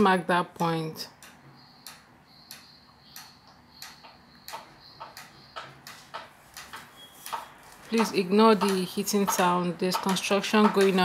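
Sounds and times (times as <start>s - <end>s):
construction hammering: 0.6s - 11.0s.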